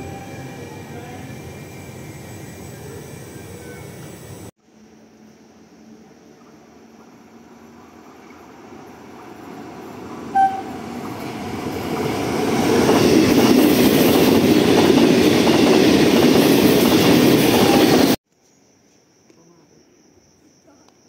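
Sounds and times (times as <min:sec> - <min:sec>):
train running past: 0:00.0 - 0:18.2
train horn toot: 0:10.3 - 0:10.9.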